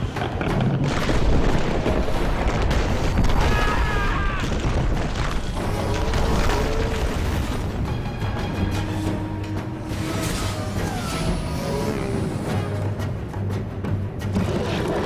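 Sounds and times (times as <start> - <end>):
orchestral music: 5.4 - 15.0.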